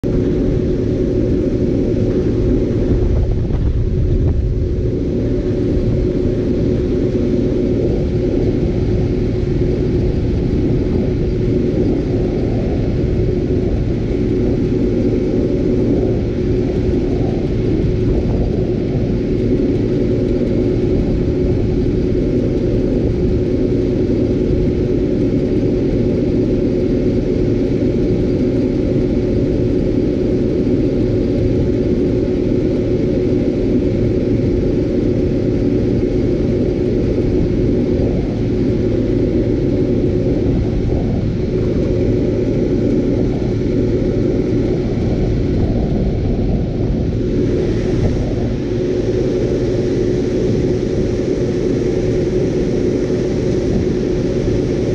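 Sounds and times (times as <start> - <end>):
combine harvester engine rumble: 0.0 - 54.9
steady machine whine: 0.0 - 54.9.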